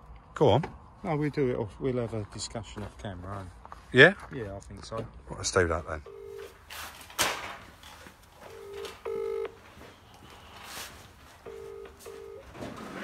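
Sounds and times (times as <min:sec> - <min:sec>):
telephone ringback tone: 0:06.1 - 0:06.5, 0:08.5 - 0:09.6, 0:11.4 - 0:13.0.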